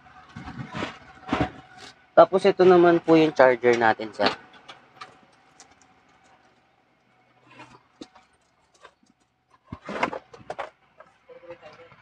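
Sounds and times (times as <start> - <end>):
scraping rustle: 0.3 - 2.0, 7.4 - 10.8.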